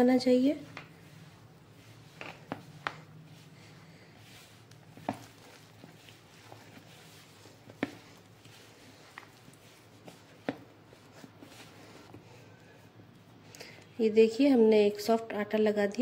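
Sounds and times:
hands kneading dough: 0:00.0 - 0:16.0.

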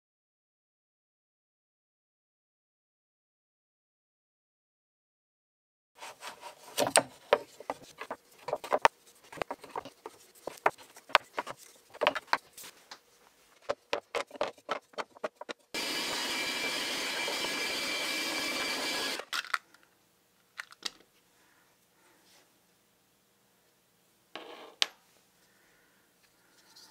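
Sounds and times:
wooden pieces clacking: 0:13.6 - 0:15.7, 0:19.2 - 0:19.9
vacuum cleaner running: 0:15.8 - 0:19.2.

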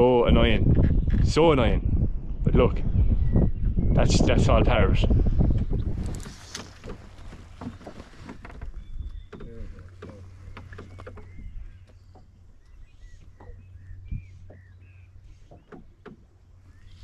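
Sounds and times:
water lapping against boat hull: 0:05.4 - 0:17.0
light knocks and clicks: 0:05.6 - 0:12.4, 0:15.4 - 0:16.3.

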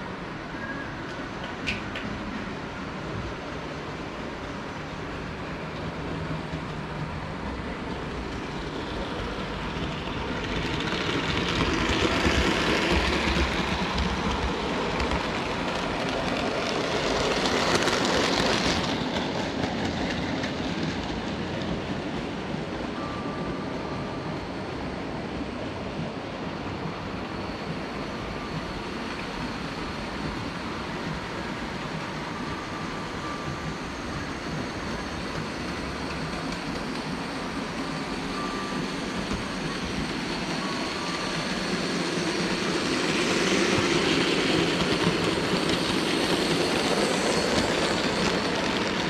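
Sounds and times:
model train wheels rumbling on rail: 0:05.6 - 0:22.3, 0:32.7 - 0:49.0.

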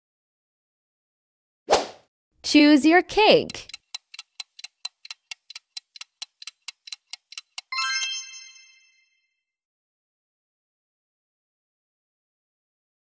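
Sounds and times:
countdown timer ticking: 0:03.2 - 0:08.9
bright bell-like chime: 0:07.7 - 0:09.3.

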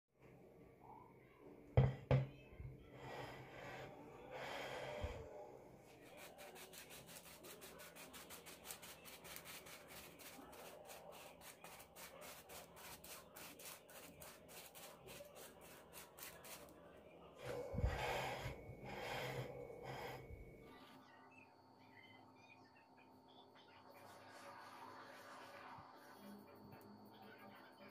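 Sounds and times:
sugar sifting through sieve: 0:05.9 - 0:16.8.

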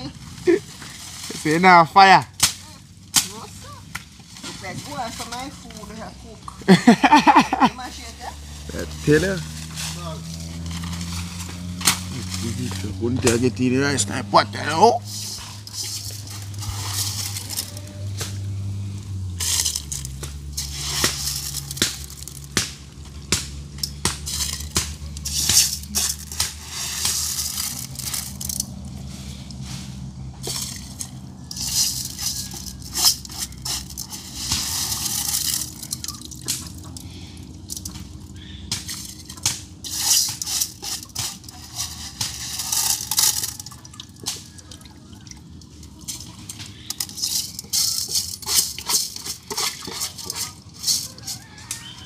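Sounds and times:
rice being washed in water: 0:15.0 - 0:22.6, 0:39.8 - 0:51.6.

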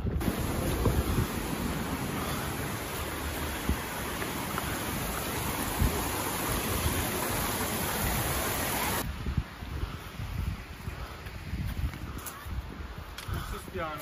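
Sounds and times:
stream rushing over rocks: 0:00.2 - 0:09.1.

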